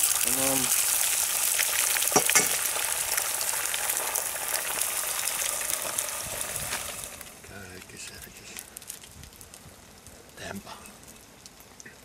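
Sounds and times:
bacon and eggs sizzling in a pan: 0:00.0 - 0:11.9.

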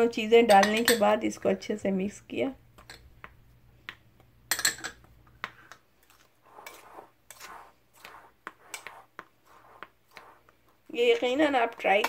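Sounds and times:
spoon scraping through flour: 0:05.5 - 0:12.0.

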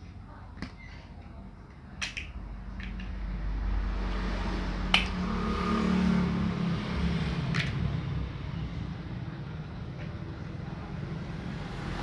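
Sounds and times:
plastic blocks clicking together: 0:02.0 - 0:03.2.

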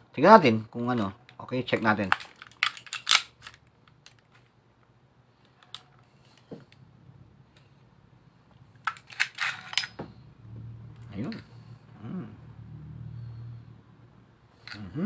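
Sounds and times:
pistol slide clicking and clacking: 0:02.2 - 0:04.2.

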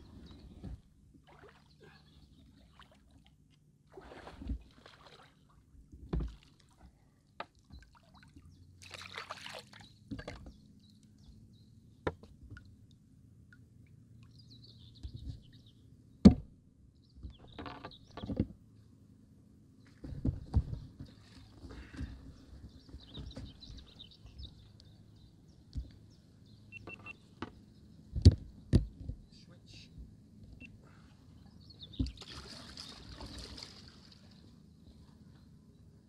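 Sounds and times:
paddle splashes: 0:01.2 - 0:02.0, 0:03.9 - 0:06.8, 0:07.8 - 0:10.4, 0:31.9 - 0:34.5.

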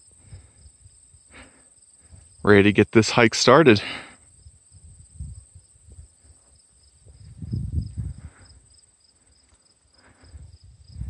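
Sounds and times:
insects buzzing and chirping: 0:00.0 - 0:11.0
wind rumble on microphone: 0:04.4 - 0:08.6, 0:10.2 - 0:11.0.

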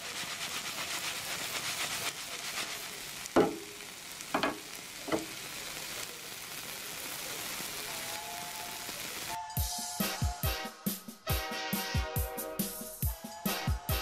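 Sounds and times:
pancakes sizzling in a frying pan: 0:00.0 - 0:09.4.

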